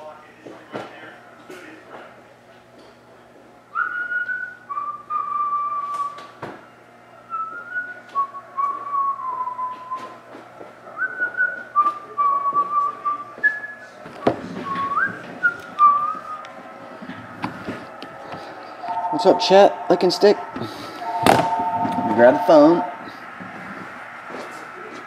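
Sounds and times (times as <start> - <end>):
person whistling a tune: 3.8 - 6.2, 7.3 - 10.2, 18.4 - 23.0.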